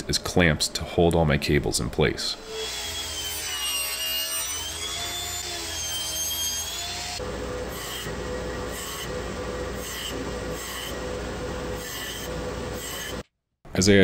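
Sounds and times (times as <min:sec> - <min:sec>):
power tool motor wavering pitch: 0:02.4 - 0:10.1
power tool with regular pulse: 0:02.4 - 0:13.2.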